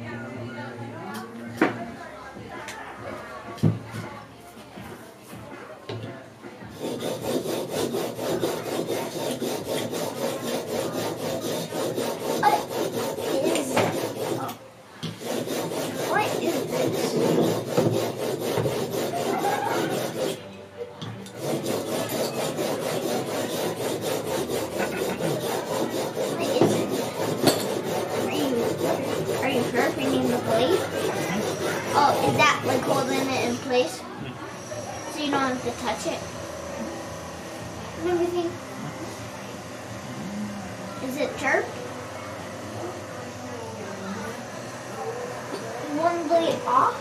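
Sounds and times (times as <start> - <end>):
blade scraping on sharpening stone: 6.8 - 20.5, 21.2 - 33.8.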